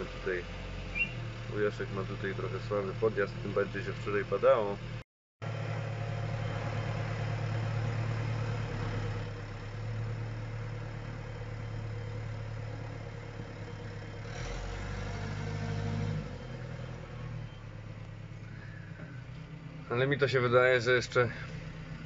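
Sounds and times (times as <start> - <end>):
diesel engine idling: 0.0 - 22.0.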